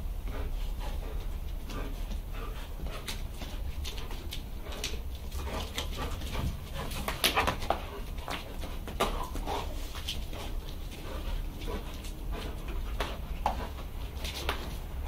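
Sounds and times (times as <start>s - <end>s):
claws clicking on tiled floor: 2.8s - 14.9s.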